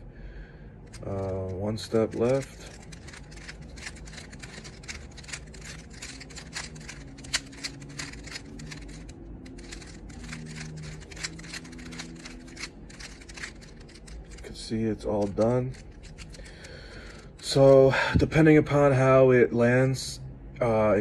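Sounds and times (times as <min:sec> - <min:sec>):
puzzle cube clicking: 0:00.9 - 0:14.4, 0:15.1 - 0:17.4.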